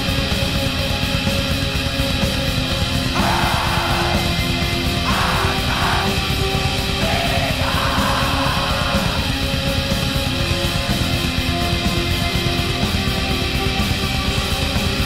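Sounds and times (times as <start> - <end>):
distorted electric guitars: 0.0 - 15.0
drums: 0.0 - 15.0
rasping shrieked vocals: 3.1 - 9.4.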